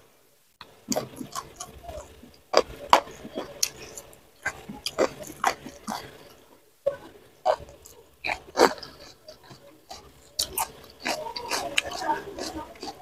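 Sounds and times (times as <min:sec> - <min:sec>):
chewing and lip smacks: 0:00.6 - 0:13.0
sharp mouth clicks: 0:00.9 - 0:06.4.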